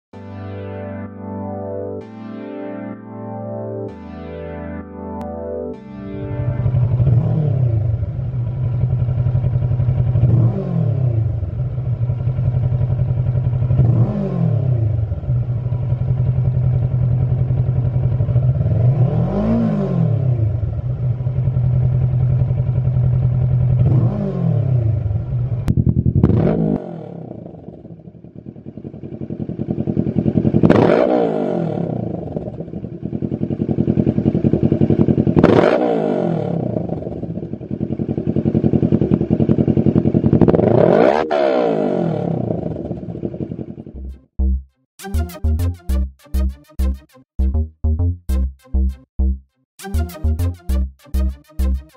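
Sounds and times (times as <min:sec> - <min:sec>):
motorcycle engine idling and revving: 0:06.4 - 0:44.7.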